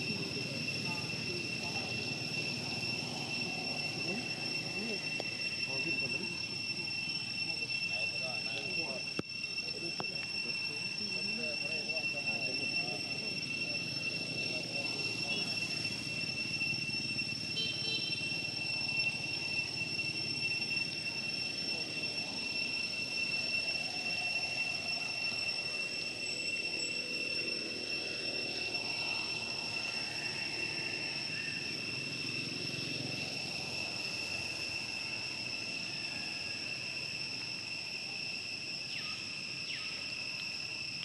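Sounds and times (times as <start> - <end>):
insects droning: 0.0 - 41.0.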